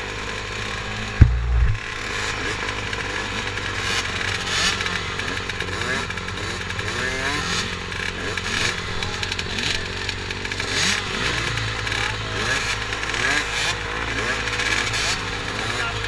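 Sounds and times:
motocross bikes idling: 0:00.0 - 0:16.0.

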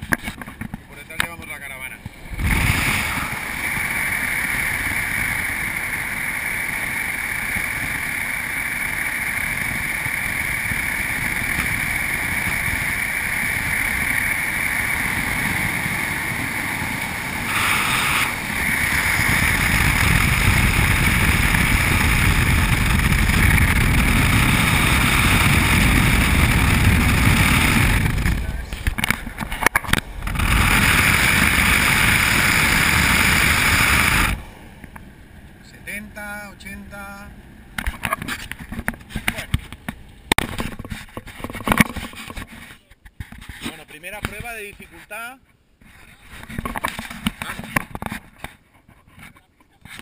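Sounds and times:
wind noise: 0:00.0 - 0:35.4
engine rumble: 0:00.0 - 0:43.2.

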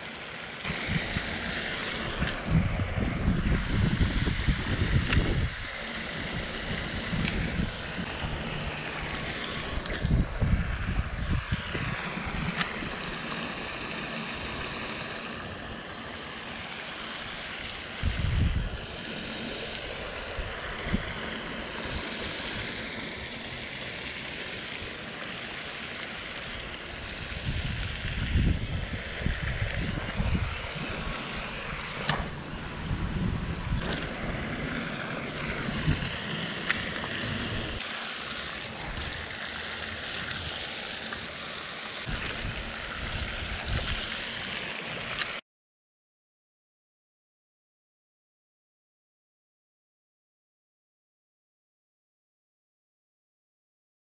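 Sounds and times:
fountain spray splashing: 0:00.0 - 0:45.4
wind rumble on microphone: 0:00.7 - 0:13.2, 0:18.0 - 0:19.0, 0:19.8 - 0:22.7, 0:26.9 - 0:37.8, 0:42.1 - 0:44.3
sharp click: 0:05.0 - 0:05.4, 0:32.0 - 0:32.4.

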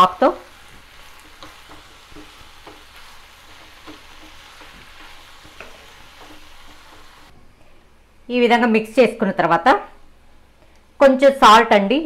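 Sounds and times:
onions sizzling in a pan: 0:00.0 - 0:07.3
spatula scraping a pan: 0:00.6 - 0:07.3.

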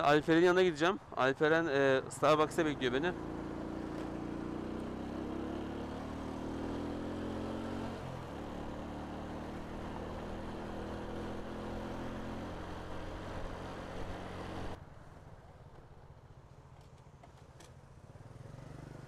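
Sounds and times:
motorcycle engine running: 0:02.2 - 0:14.8.

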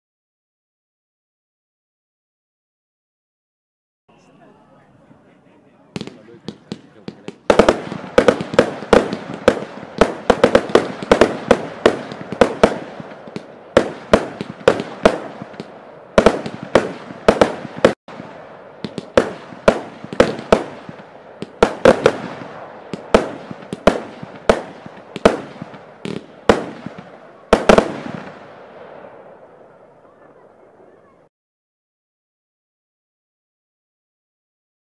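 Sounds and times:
fireworks bangs: 0:04.1 - 0:31.3.

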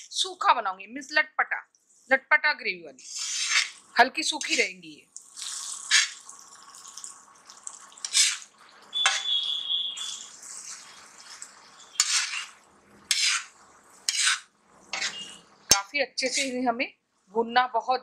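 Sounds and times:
spoon scraping on iron pan: 0:03.0 - 0:04.6, 0:05.3 - 0:06.4, 0:08.0 - 0:16.6
brief high squeal: 0:09.0 - 0:10.3, 0:15.0 - 0:15.4.

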